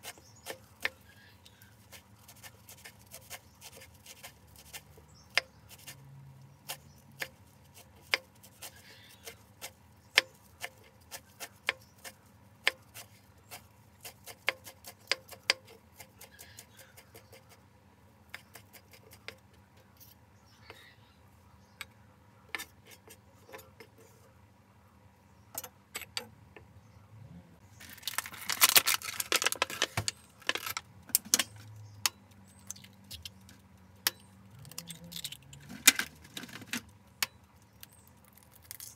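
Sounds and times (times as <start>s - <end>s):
knife chopping herbs on wooden board: 0.0s - 6.0s, 6.6s - 17.6s, 18.3s - 19.4s.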